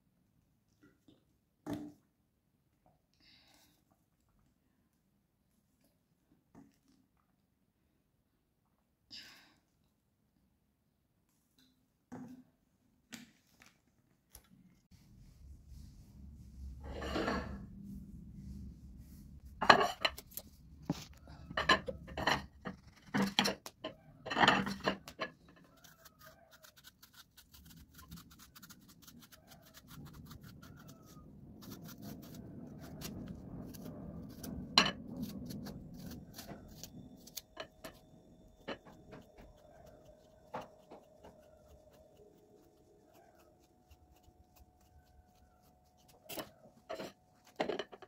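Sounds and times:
dishes scraping and rubbing: 15.8 - 26.5, 28.9 - 42.2, 46.1 - 48.0
dishes and cutlery clinking: 21.5 - 25.4.

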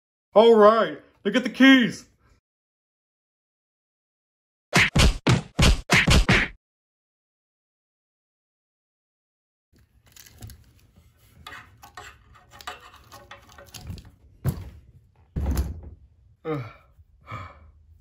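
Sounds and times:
plush toys thumping on floor: 15.4 - 16.0.

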